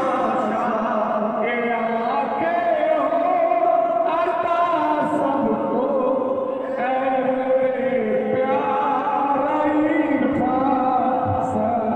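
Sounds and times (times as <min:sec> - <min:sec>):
devotional song with held notes: 0:00.0 - 0:11.9.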